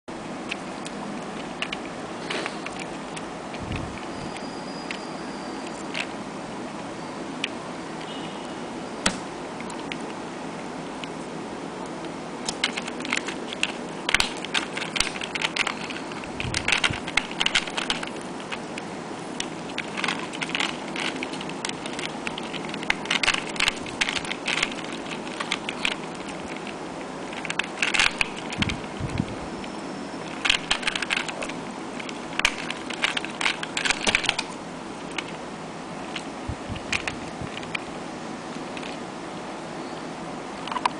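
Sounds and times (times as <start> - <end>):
plastic puzzle clicking: 12.5 - 18.6, 19.4 - 29.0, 30.2 - 35.4.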